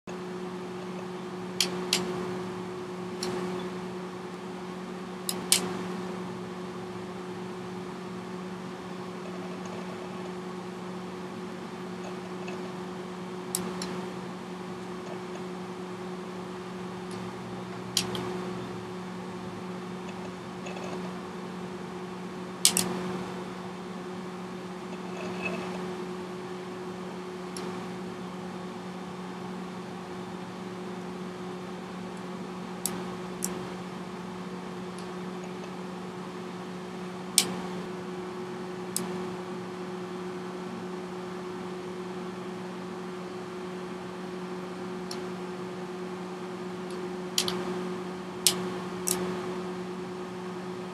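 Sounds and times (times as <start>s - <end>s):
steady low hum: 0.0s - 50.9s
tv set clicking: 5.3s - 5.7s, 17.9s - 18.4s, 22.6s - 23.0s, 46.9s - 47.6s.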